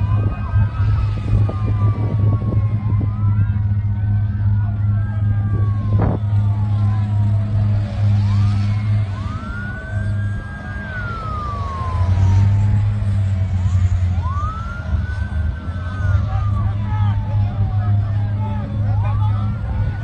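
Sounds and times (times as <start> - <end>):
emergency sirens wailing: 0.0 - 20.0
low engine hum: 0.0 - 20.0.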